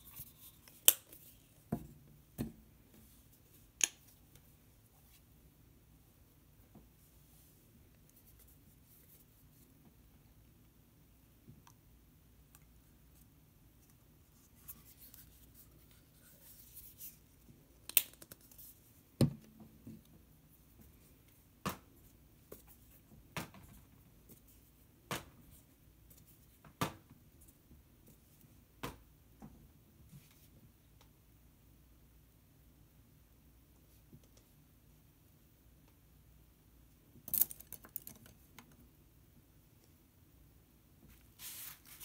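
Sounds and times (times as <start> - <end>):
brush moving over paper: 14.2 - 17.4, 41.1 - 42.0.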